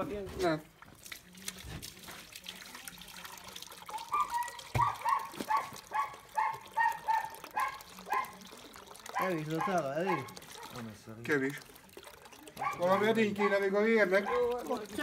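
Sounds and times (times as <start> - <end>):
dog barking: 3.9 - 8.4, 9.1 - 10.8, 12.6 - 14.8.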